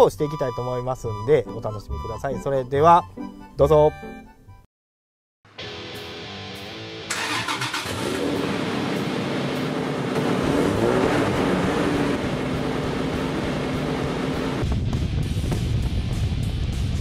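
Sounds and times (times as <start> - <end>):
background music: 0.0 - 4.6, 9.6 - 14.7
engine starting and revving: 7.1 - 14.6.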